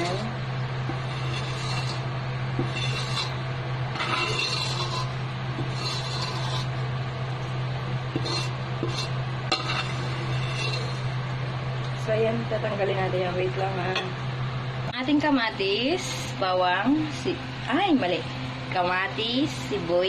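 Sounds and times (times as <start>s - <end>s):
steady low hum: 0.0s - 20.0s
spatula scraping metal wok: 0.9s - 6.8s, 8.2s - 11.2s.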